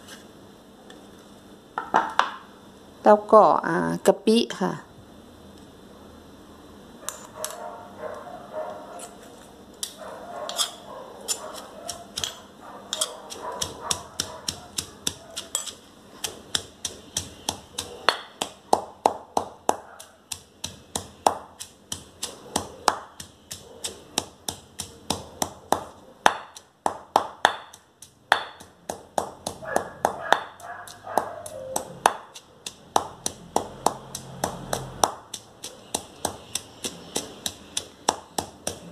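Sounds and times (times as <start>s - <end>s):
pestle knocking and scraping mortar: 10.5s - 38.9s
hard pestle strikes: 11.9s - 38.9s.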